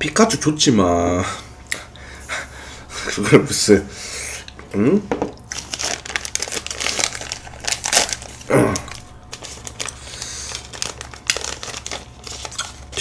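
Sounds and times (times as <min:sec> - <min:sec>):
plastic wrapper crinkling: 0:05.4 - 0:13.0
short vocal sound: 0:08.5 - 0:08.9.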